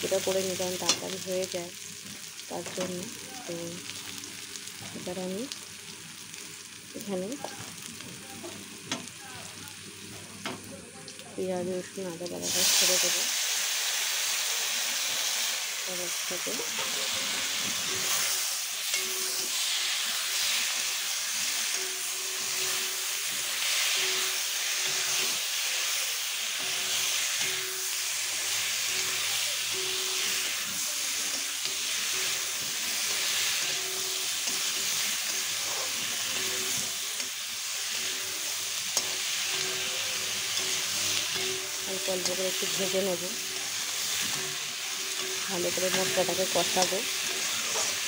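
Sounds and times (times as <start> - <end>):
food sizzling in hot oil: 0.0 - 48.0
spatula stirring in wok: 16.4 - 48.0.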